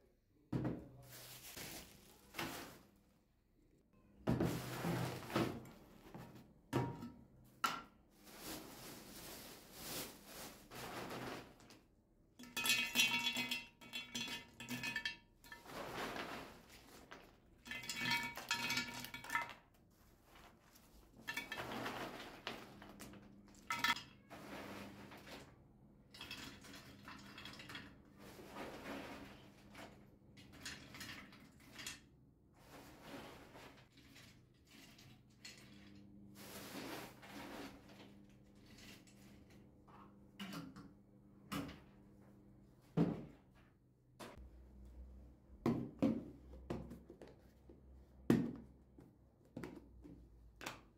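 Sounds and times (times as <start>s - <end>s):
plastic bags rustling: 1.0s - 3.2s, 8.1s - 11.8s, 15.6s - 18.4s.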